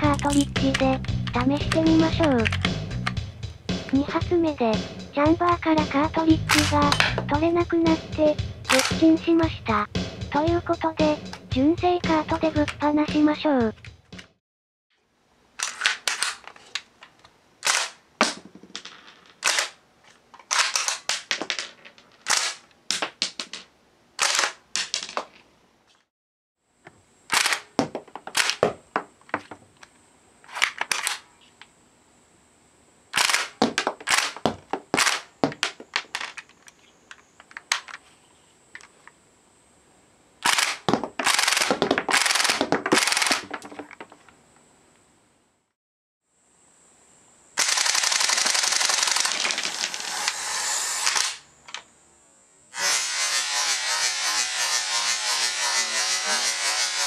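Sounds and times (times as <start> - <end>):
airsoft gun rapid bursts: 8.7 - 9.0, 40.4 - 43.5, 47.6 - 50.0.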